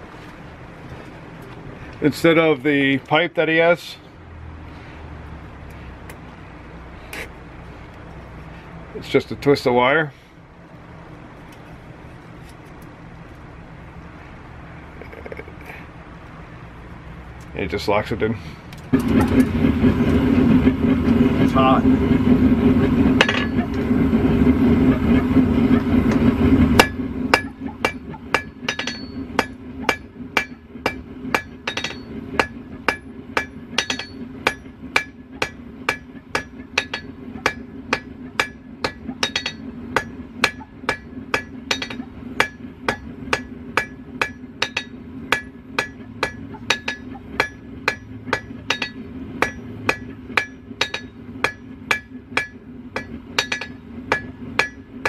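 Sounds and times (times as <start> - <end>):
forge burner roaring: 0.0 - 55.0
hammer ringing on anvil: 23.2 - 23.7, 26.8 - 54.9.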